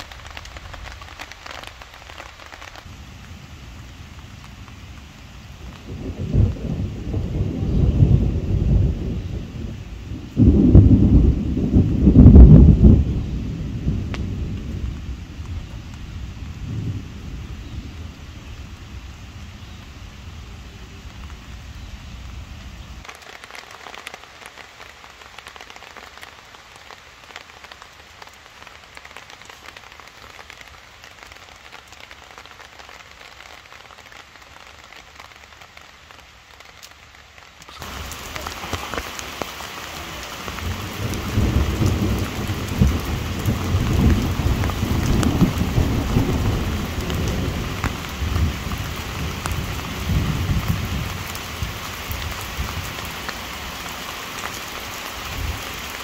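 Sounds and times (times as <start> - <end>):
heavy rain falling: 0.0 - 56.0
thunder rumbling: 5.6 - 19.2, 37.8 - 53.1.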